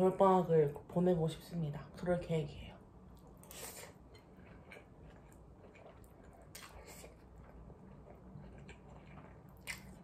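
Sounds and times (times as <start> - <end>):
person chewing and slurping noodles: 3.2 - 10.0.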